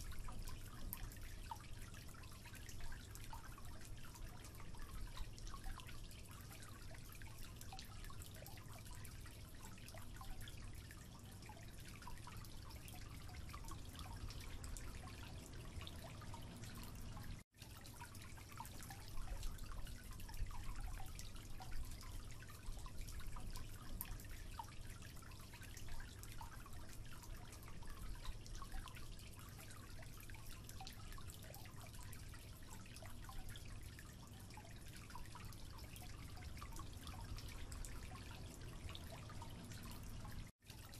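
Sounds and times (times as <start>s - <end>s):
water dripping into sink: 0.0s - 40.9s
low steady rumble: 11.9s - 17.4s, 34.6s - 40.5s.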